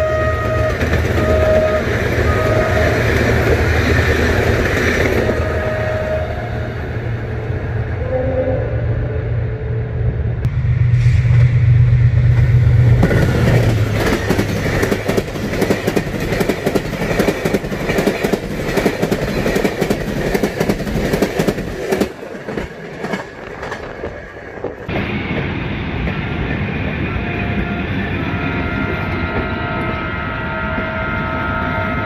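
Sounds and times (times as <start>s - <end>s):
locomotive engine hum: 0.0s - 32.0s
train wheels clattering over joints: 13.0s - 24.9s.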